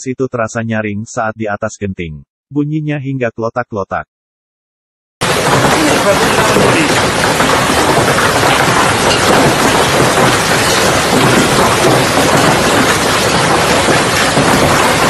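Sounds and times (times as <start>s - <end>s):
hail and heavy rain pelting: 5.2s - 15.0s.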